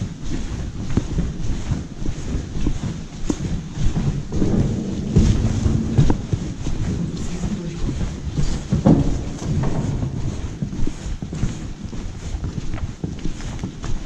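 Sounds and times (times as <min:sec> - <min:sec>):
wind buffeting microphone: 0:00.0 - 0:14.0
short knocks: 0:04.0 - 0:10.7.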